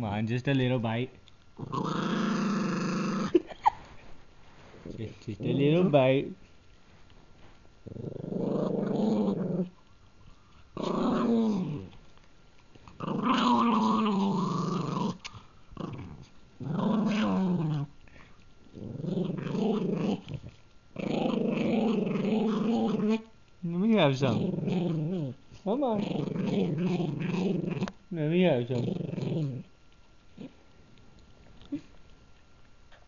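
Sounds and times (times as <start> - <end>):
dog growling: 1.6 - 3.6, 7.8 - 9.8, 10.7 - 12.0, 12.8 - 29.7.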